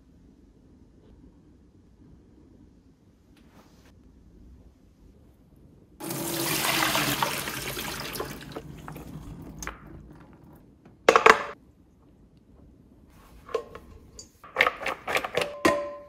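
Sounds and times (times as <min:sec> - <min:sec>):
water pouring into colander: 0:06.0 - 0:10.6.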